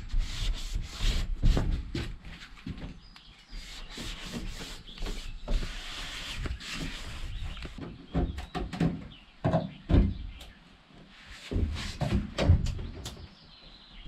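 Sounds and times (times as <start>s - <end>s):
scraping and rubbing of panels: 0.0s - 2.9s, 3.5s - 9.0s, 11.1s - 12.9s
knocks and thumps on panels: 7.7s - 10.4s, 11.5s - 13.3s.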